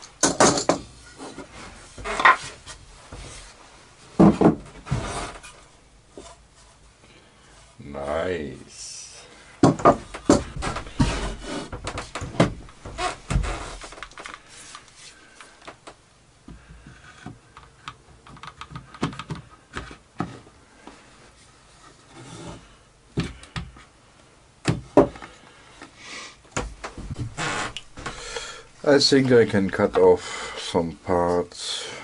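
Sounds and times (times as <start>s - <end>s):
wooden knocks and clunks: 0.2s - 3.5s, 4.2s - 5.6s, 9.6s - 14.4s, 18.1s - 20.4s, 23.1s - 23.8s, 24.6s - 25.4s, 26.5s - 30.1s.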